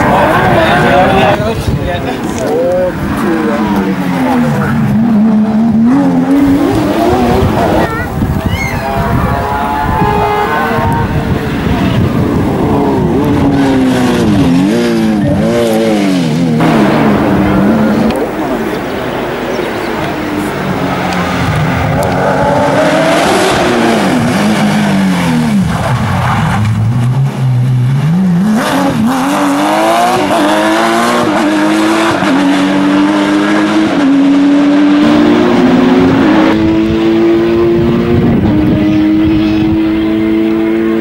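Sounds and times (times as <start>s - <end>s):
rally car engine accelerating: 2.1s - 7.9s, 9.3s - 41.0s.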